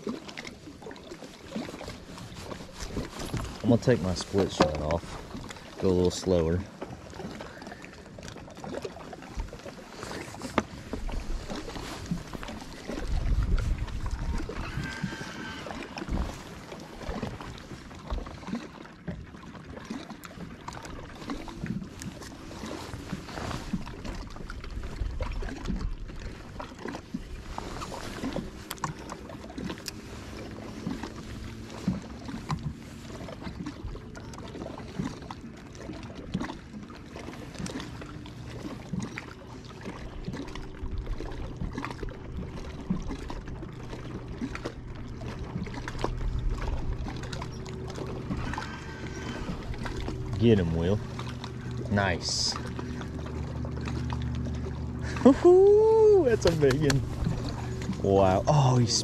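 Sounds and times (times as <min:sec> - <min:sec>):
water lapping against boat hull: 0:00.0 - 0:59.0
electric motor humming: 0:14.4 - 0:16.0.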